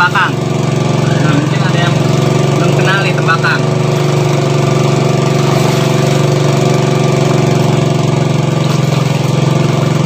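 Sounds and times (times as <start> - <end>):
engine-driven water pump running: 0.0 - 10.0.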